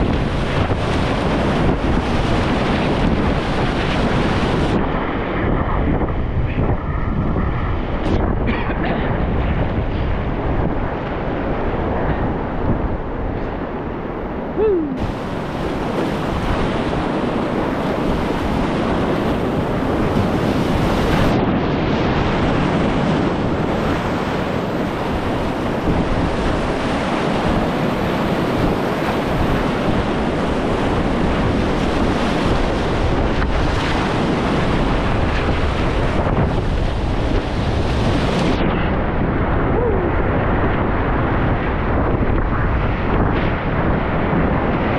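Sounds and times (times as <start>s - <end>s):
wind noise on microphone: 0.0s - 44.9s
whitewater rushing: 14.4s - 21.4s.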